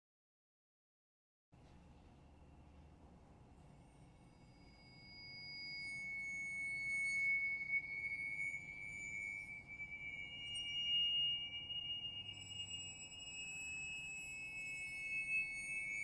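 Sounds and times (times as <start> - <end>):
finger cymbals shimmering: 3.6 - 16.0.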